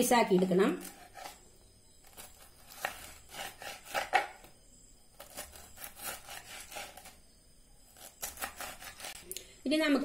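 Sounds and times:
knife sawing pineapple rind: 0:00.7 - 0:01.4, 0:02.0 - 0:04.3, 0:05.2 - 0:07.2, 0:08.0 - 0:09.2.

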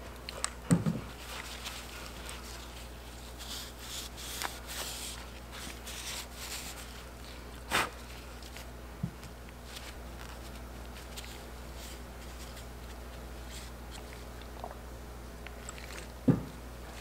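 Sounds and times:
steady low hum: 0:00.0 - 0:17.0
gloved hands rubbing and rustling: 0:01.0 - 0:14.5.

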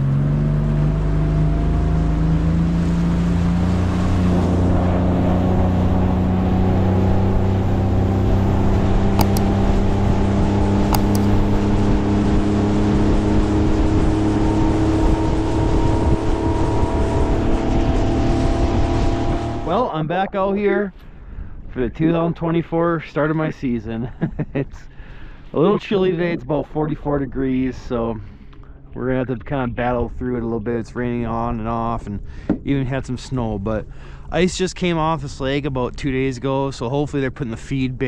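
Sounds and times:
outboard motor running: 0:00.0 - 0:19.8
short clicks: 0:09.2 - 0:09.5, 0:10.9 - 0:11.6.

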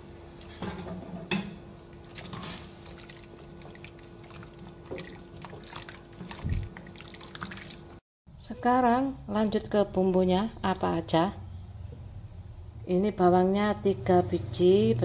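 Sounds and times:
water sloshing in a pot: 0:00.7 - 0:08.0.

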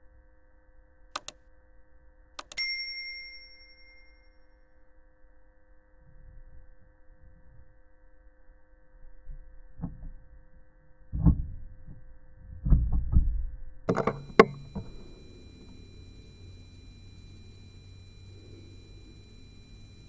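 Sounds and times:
sharp click: 0:01.2 - 0:01.4, 0:02.4 - 0:02.7, 0:13.9 - 0:15.0.

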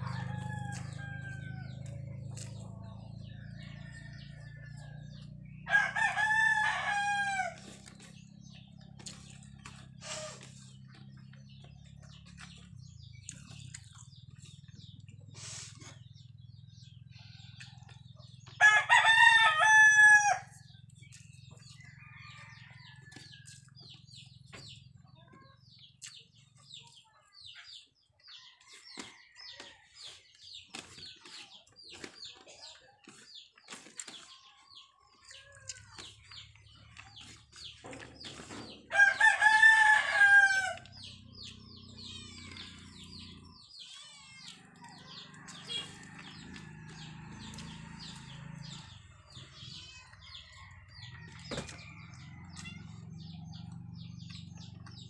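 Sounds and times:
rooster crowing: 0:00.0 - 0:02.0, 0:03.3 - 0:07.7, 0:18.6 - 0:20.6, 0:38.9 - 0:41.0.

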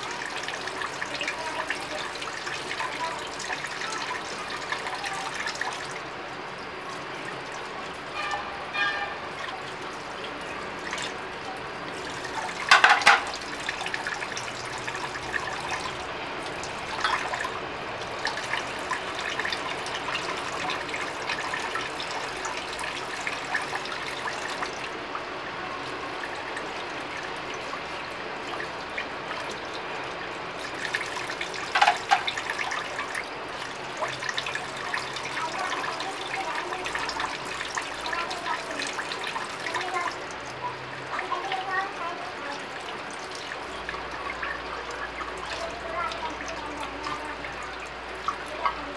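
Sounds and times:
tap water running into sink: 0:06.9 - 0:25.0, 0:25.8 - 0:48.9
crockery clinking: 0:12.7 - 0:13.4, 0:17.0 - 0:17.3, 0:31.8 - 0:32.3.

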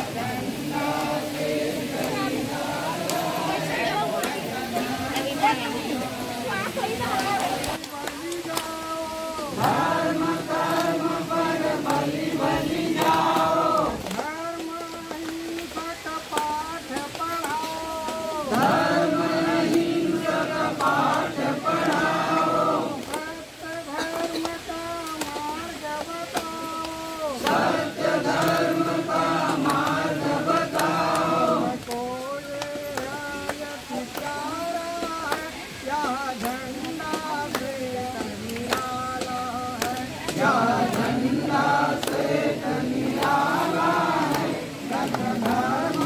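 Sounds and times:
group singing a chant: 0:00.0 - 0:46.0
single voice singing: 0:00.0 - 0:46.0.

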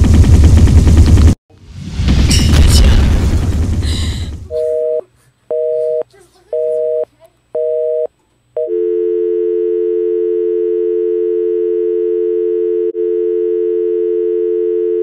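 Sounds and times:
telephone dial tone: 0:07.6 - 0:15.0.

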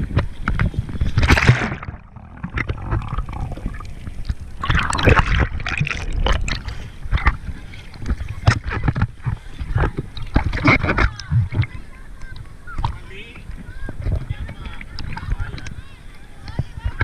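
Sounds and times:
muffled underwater sound: 0:00.0 - 0:17.0
water splashing and gurgling: 0:00.0 - 0:17.0.

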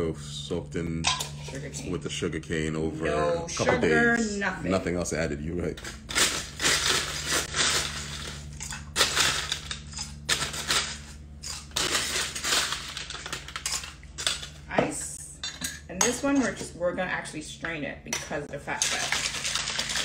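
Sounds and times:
cocktail shaker with ice rattling: 0:18.8 - 0:20.0.

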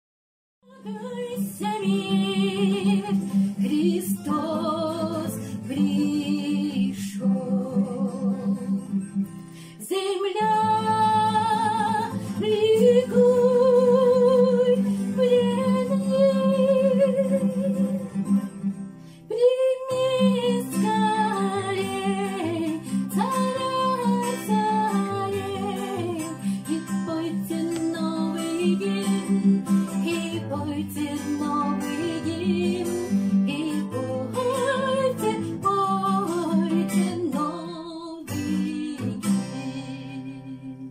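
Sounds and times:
woman singing a hymn with vibrato: 0:00.7 - 0:08.8, 0:09.8 - 0:18.0, 0:19.3 - 0:40.9
strummed acoustic guitar: 0:00.7 - 0:40.9.

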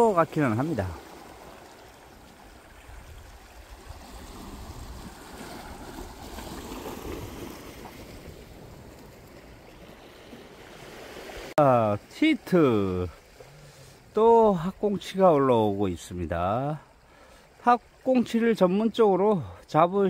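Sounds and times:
water washing against rocks: 0:00.0 - 0:11.5
wind rumble on microphone: 0:02.5 - 0:10.1.

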